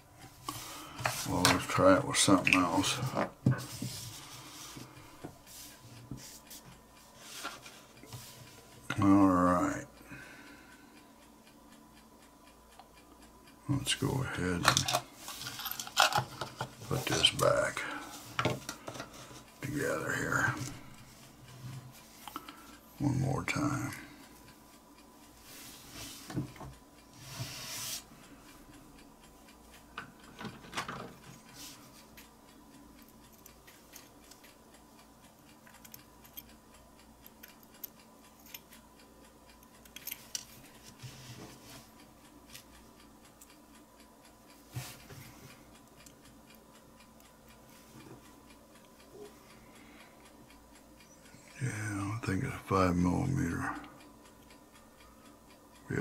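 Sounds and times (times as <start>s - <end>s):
faint steady hum: 0.0s - 56.0s
small metal clicks and scrapes: 14.6s - 17.5s.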